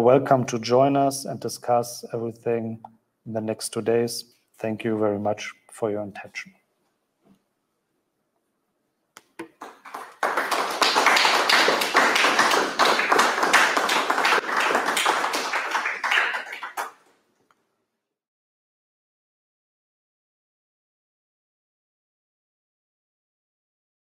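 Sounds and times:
audience applauding: 0:09.5 - 0:17.1.

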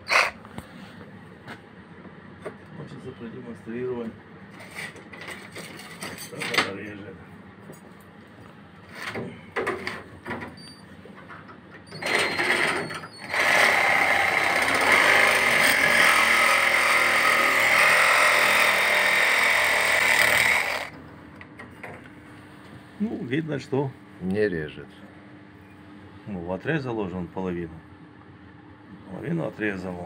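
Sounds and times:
reciprocating saw cutting metal: 0:00.0 - 0:00.4, 0:13.2 - 0:20.9.

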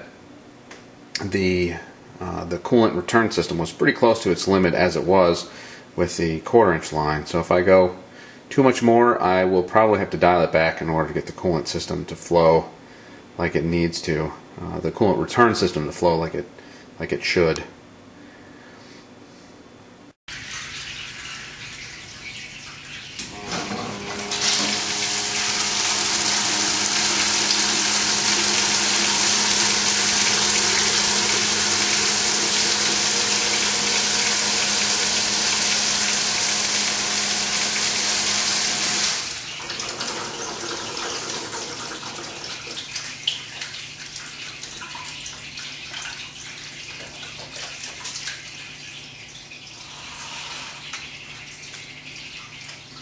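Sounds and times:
coolant trickling and dripping: 0:20.3 - 0:23.4, 0:39.1 - 0:53.0
coolant gushing into bucket: 0:20.3 - 0:53.0
pump hum: 0:20.3 - 0:53.0.

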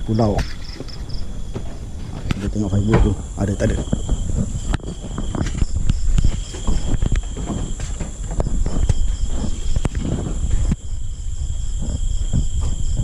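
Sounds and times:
close knocks and thumps: 0:00.0 - 0:13.0
crickets trilling: 0:00.0 - 0:13.0
low rumble: 0:00.8 - 0:13.0.

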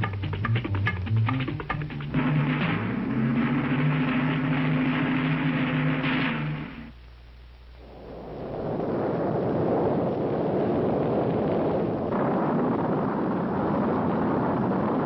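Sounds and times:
rocket engines rumbling: 0:00.0 - 0:07.0.

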